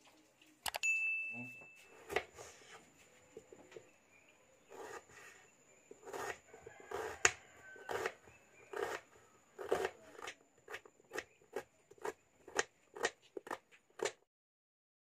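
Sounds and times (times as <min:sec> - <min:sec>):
knife chopping onion on board: 0:06.0 - 0:14.2.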